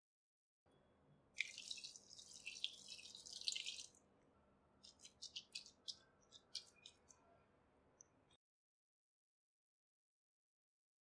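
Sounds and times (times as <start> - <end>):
hand mixing wet rice flakes: 1.4 - 4.0, 4.8 - 7.2
water splashing into bowl: 1.4 - 4.0, 4.8 - 7.2.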